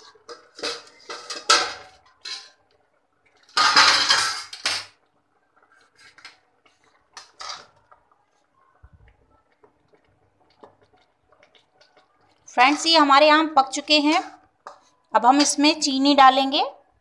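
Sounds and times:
metal lid clattering on pot: 0:00.2 - 0:02.6, 0:03.5 - 0:04.9.

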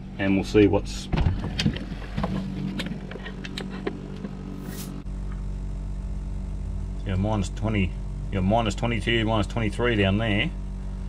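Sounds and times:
fridge low hum: 0:00.0 - 0:11.0
handling clicks rubs and knocks: 0:01.5 - 0:04.4.

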